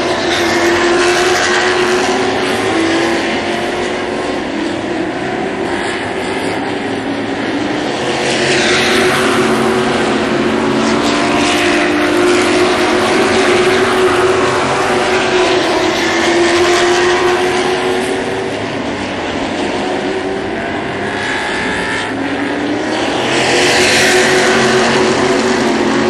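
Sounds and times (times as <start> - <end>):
race car engines at high revs: 0.0 - 26.0.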